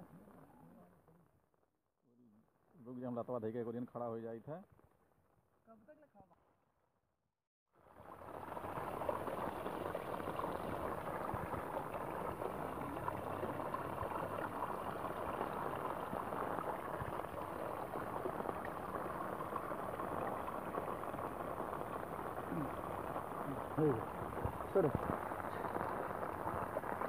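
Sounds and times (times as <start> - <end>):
stream bubbling and splashing: 7.9 - 27.0.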